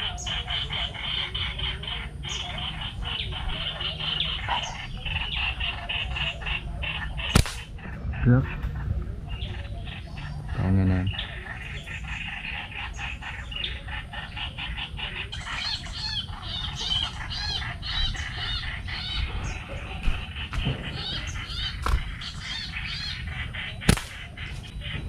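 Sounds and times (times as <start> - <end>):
small birds chirping: 0.0 - 25.0
slingshot snap: 7.4 - 7.7, 23.9 - 24.2.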